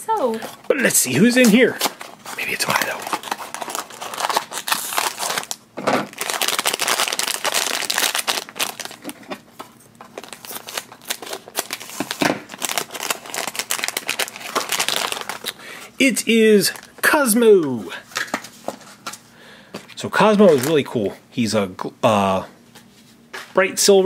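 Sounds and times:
foil bag crinkling: 0.7s - 17.2s, 20.2s - 20.9s.

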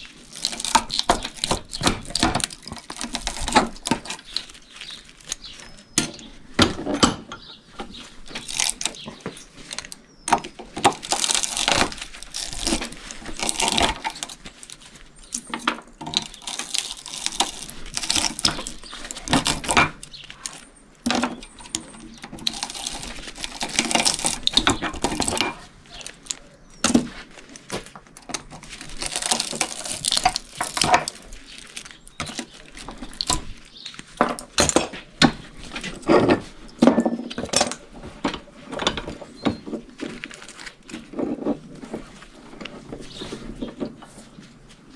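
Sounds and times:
wire scraping: 0.0s - 6.3s, 7.8s - 34.2s.

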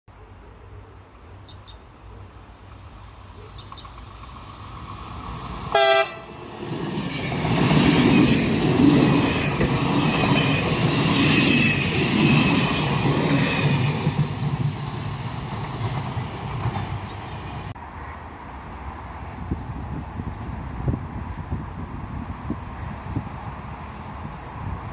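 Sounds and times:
train passing: 1.8s - 24.9s
train horn blast: 5.7s - 6.4s.

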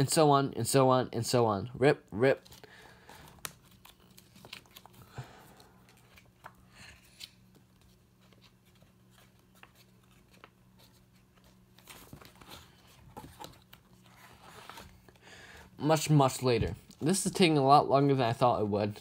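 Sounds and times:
faint steady hum: 0.0s - 19.0s
paper page rustling: 5.8s - 15.1s.

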